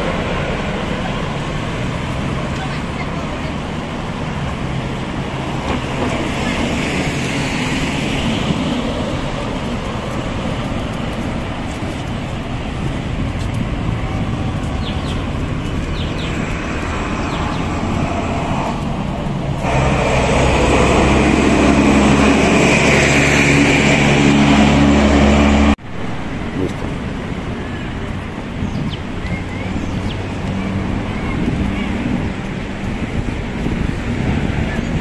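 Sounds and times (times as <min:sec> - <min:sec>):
nearby vehicle engine hum: 0:00.0 - 0:25.8
cars passing: 0:00.0 - 0:35.0.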